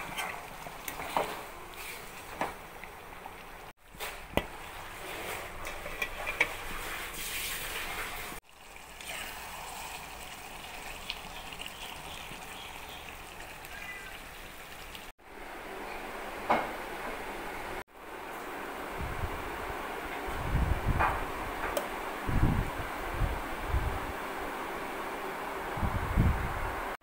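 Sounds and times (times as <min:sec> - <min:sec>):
curry bubbling in a metal pot: 0:04.3 - 0:15.0.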